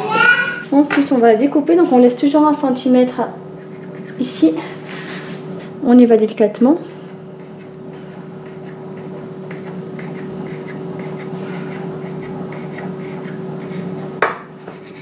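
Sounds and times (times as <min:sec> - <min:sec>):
steady hum: 0:00.0 - 0:15.0
knife cutting bread dough: 0:08.4 - 0:15.0.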